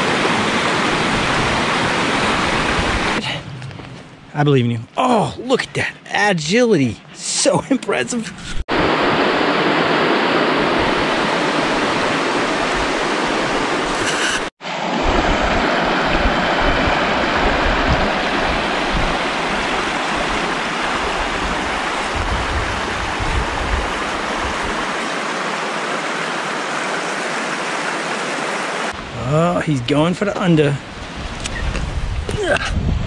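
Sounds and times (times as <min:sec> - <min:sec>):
stream rushing over rocks: 0:00.0 - 0:03.2, 0:08.7 - 0:29.3.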